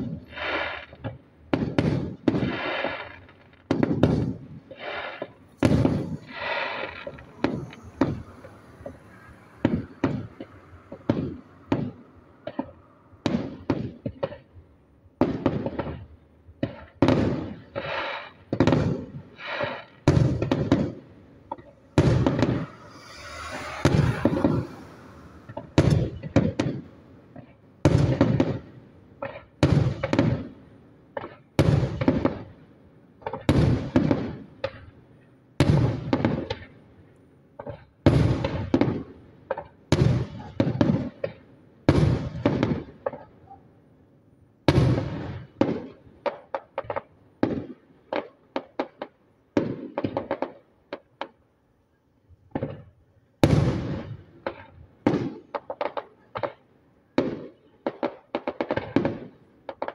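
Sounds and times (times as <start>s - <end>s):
firework shells bursting: 0.0s - 14.5s, 15.2s - 30.5s
hissing crackle: 4.7s - 12.8s, 21.4s - 27.0s.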